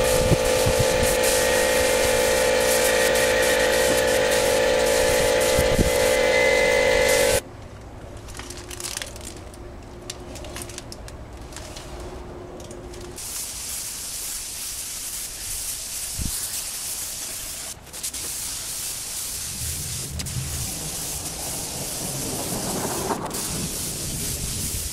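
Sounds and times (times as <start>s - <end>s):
paint spray gun hissing: 0.0s - 7.4s, 13.2s - 24.9s.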